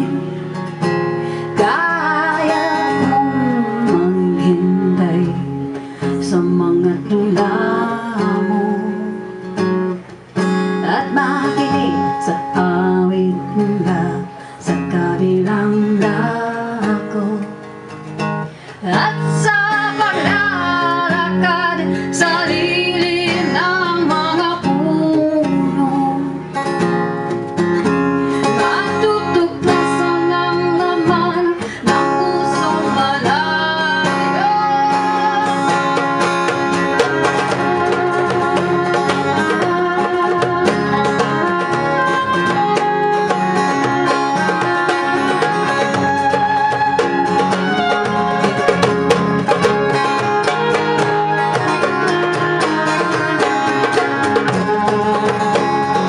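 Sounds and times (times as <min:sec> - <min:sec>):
acoustic guitar: 0:00.0 - 0:56.0
person singing: 0:01.4 - 0:09.4, 0:10.8 - 0:17.6, 0:28.4 - 0:56.0.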